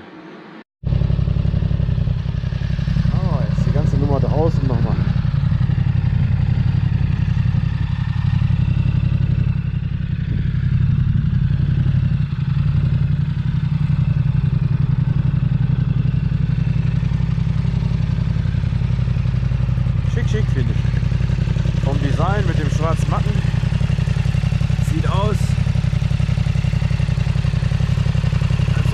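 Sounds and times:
motorcycle engine idling: 0.9 - 28.9.

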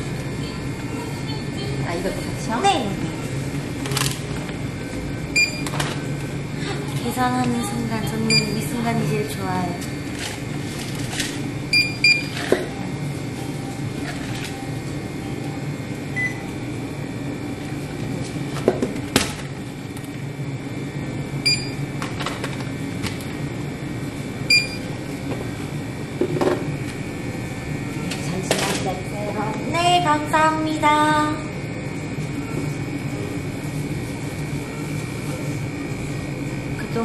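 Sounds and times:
steady background hum: 0.0 - 37.0
barcode scanner beeps: 5.4 - 5.7, 8.1 - 8.7, 11.7 - 12.9, 14.5 - 16.5, 21.4 - 21.8, 24.5 - 24.9.

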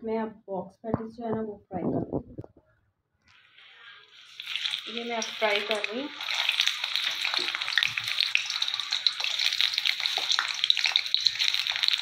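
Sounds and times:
patties deep-frying in oil: 3.3 - 12.0.

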